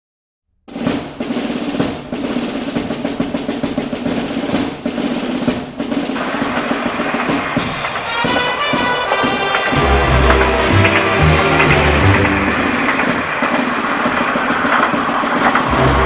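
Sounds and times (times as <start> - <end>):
snare drum roll: 0.7 - 16.0
pitched instruments: 8.0 - 13.5, 15.6 - 16.0.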